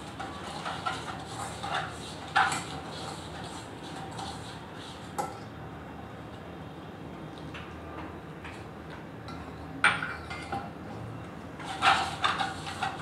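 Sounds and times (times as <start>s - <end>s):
whisk scraping in steel bowl: 0.0s - 5.4s, 11.6s - 13.0s.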